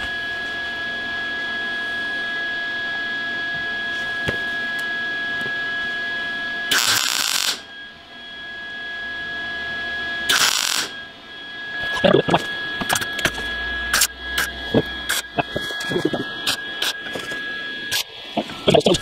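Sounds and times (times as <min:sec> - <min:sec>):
welder humming with high whine: 0:00.0 - 0:19.0
welding crackling burst: 0:06.7 - 0:07.6, 0:10.3 - 0:10.9.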